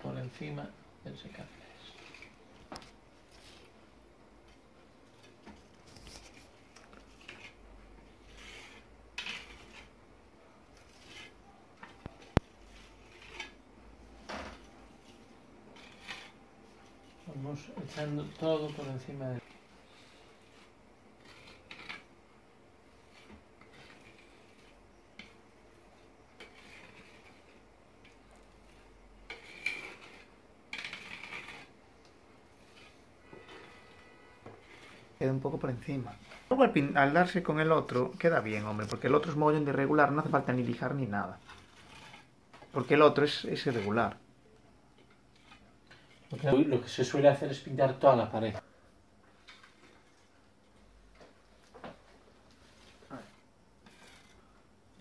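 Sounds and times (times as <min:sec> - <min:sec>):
putty knife scraping wall: 0:08.2 - 0:10.0, 0:12.0 - 0:13.6, 0:26.4 - 0:27.6, 0:28.4 - 0:31.8, 0:41.4 - 0:44.1, 0:53.2 - 0:54.5.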